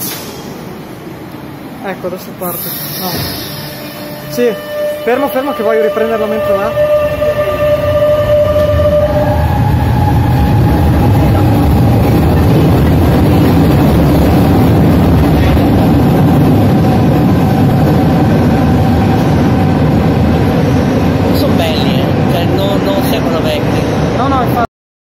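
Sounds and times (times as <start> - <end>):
train wheels rumbling on rail: 0.0 - 24.7.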